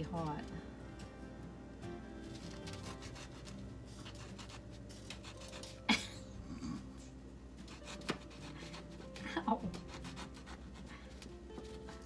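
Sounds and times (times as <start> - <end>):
knife sawing through crusty food: 2.2 - 5.9, 7.6 - 11.8.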